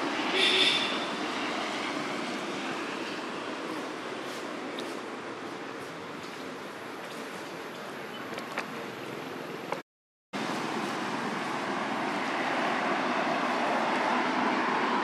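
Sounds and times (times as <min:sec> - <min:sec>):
car passing: 0:00.0 - 0:04.4, 0:10.4 - 0:15.0
outdoor background noise: 0:00.0 - 0:09.8, 0:10.4 - 0:15.0.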